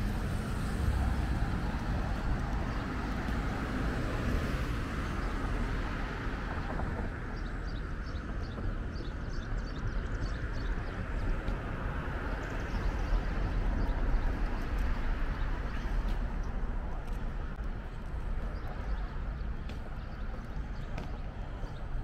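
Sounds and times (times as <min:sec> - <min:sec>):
footsteps on pavement: 0:00.5 - 0:04.4, 0:10.9 - 0:12.2, 0:14.0 - 0:22.0.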